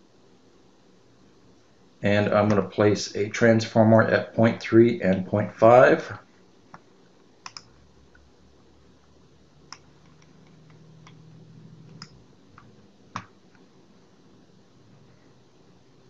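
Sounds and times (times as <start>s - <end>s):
faint low hum: 0.0s - 16.0s
computer mouse clicks: 7.4s - 7.8s, 9.7s - 13.7s.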